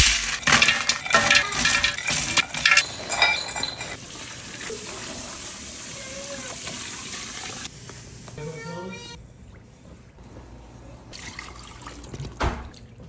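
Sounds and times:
frozen fruit clattering on metal: 0.0s - 4.0s
water splashing into pot: 0.0s - 5.8s.

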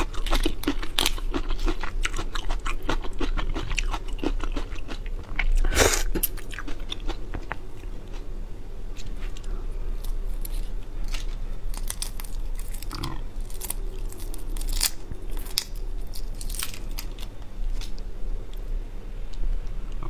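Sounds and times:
prawn shell cracking: 10.0s - 18.0s.

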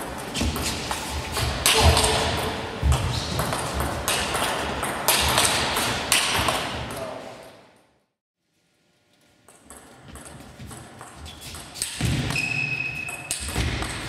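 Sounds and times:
table tennis ball hits: 0.4s - 7.0s, 9.5s - 14.0s.

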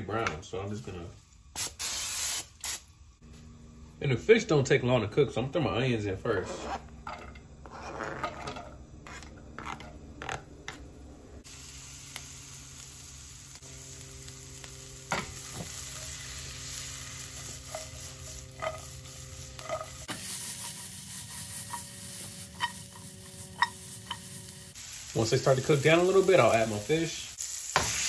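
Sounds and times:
knife scraping cutting board: 6.3s - 10.8s, 19.6s - 24.7s
onions sizzling in pan: 11.4s - 28.0s.

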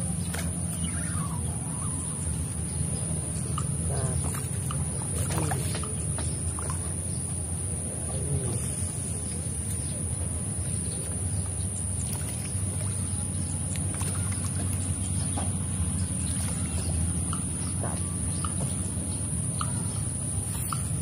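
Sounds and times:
steady low rumble: 0.0s - 21.0s
fish splashing at water surface: 10.9s - 18.9s.

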